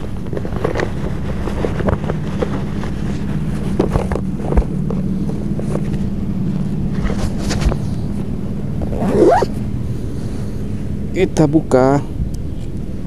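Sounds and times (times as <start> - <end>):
low motor drone: 0.0 - 13.0.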